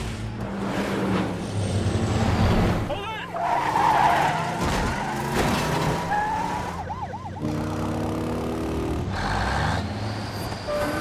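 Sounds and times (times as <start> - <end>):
vehicle engine and traffic: 0.0 - 11.0
siren yelping: 6.1 - 7.7.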